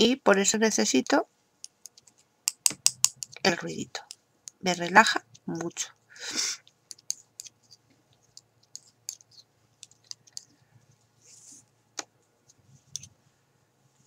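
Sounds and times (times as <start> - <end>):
knitting needles clicking: 1.0 - 5.7, 6.6 - 10.6.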